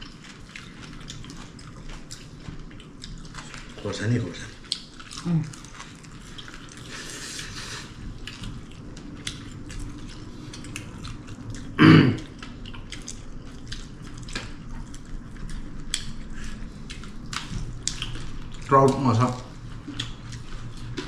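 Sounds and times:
loud throat noise: 11.8 - 12.3.

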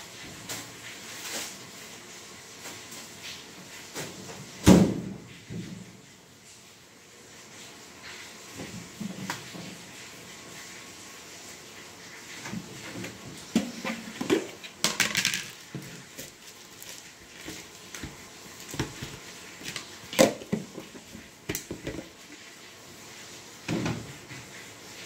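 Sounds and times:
kitchen items clicking and rustling: 12.4 - 22.4.

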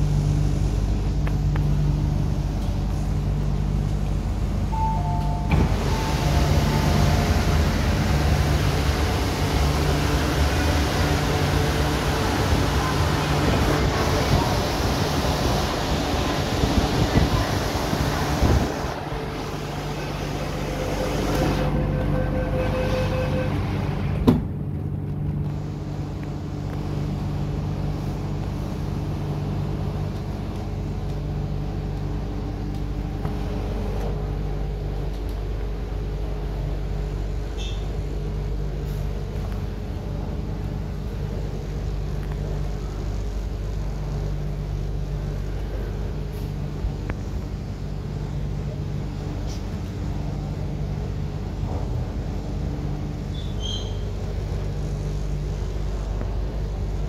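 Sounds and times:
train running hum: 0.0 - 57.0
door-closing warning tone: 4.7 - 7.6, 20.3 - 24.4, 37.6 - 37.9
train doors shutting thud: 4.8 - 8.4, 20.5 - 24.6.

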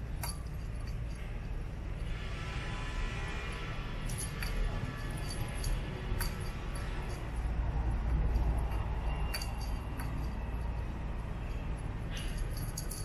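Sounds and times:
steady low rumble: 0.0 - 13.0
small bell jingling: 0.1 - 1.6, 4.0 - 7.6, 8.2 - 13.0.

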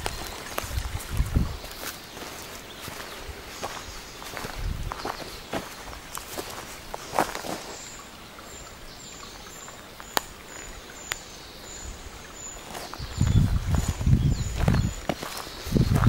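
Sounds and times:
footsteps: 0.0 - 7.8, 12.7 - 16.0
steady background hiss: 0.0 - 16.0.

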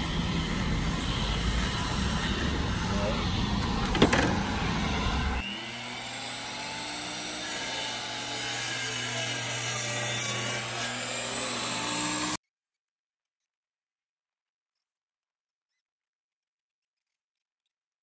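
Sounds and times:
miter saw cutting lumber: 0.0 - 12.4.

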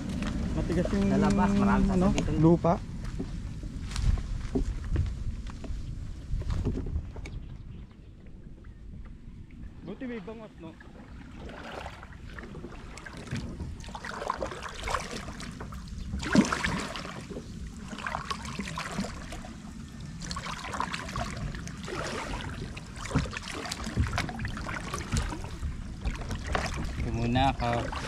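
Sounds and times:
water trickling off paddle blades: 5.6 - 28.0
kayak paddle splashing in water: 10.8 - 28.0.

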